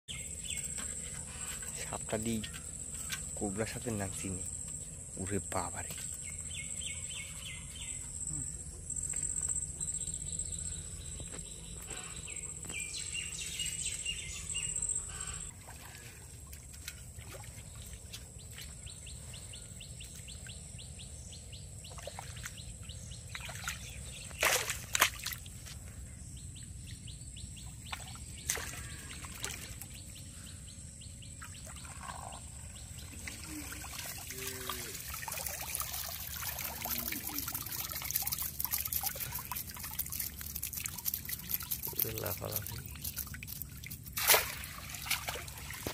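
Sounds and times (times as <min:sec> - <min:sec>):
water sloshing and trickling: 0:00.1 - 0:08.2, 0:09.0 - 0:45.9
bird chirps: 0:00.1 - 0:15.5.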